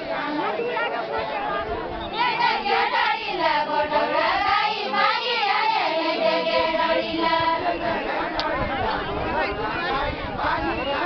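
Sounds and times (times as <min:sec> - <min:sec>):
women singing in high voices: 0:02.1 - 0:08.0.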